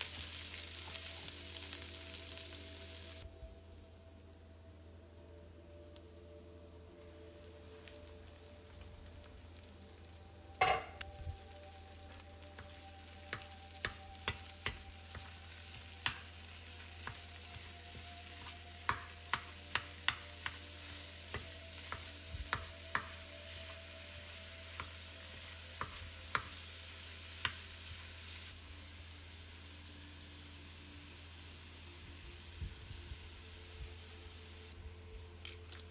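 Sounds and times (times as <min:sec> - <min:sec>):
meat sizzling: 0:00.0 - 0:03.3, 0:06.9 - 0:34.7
metal spoon tapping a pan: 0:10.6 - 0:11.0, 0:13.3 - 0:15.3, 0:16.0 - 0:16.3, 0:18.0 - 0:20.6, 0:21.3 - 0:23.2.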